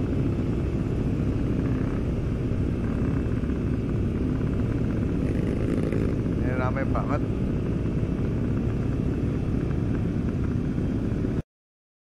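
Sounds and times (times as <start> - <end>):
motorcycle engine running: 0.0 - 11.4.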